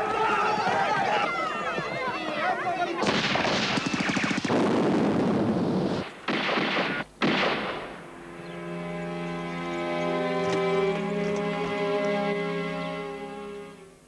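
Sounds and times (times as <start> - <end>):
rapid gunfire: 3.0 - 5.0, 6.0 - 8.0
loud blasts: 3.0 - 8.9
held music chords: 7.8 - 14.0.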